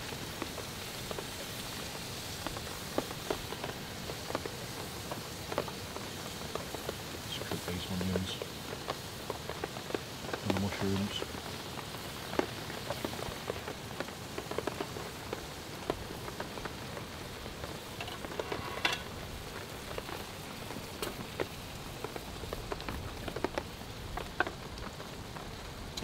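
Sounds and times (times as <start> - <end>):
food sizzling in a pan: 0.0 - 26.0
pops and crackles: 7.6 - 26.0.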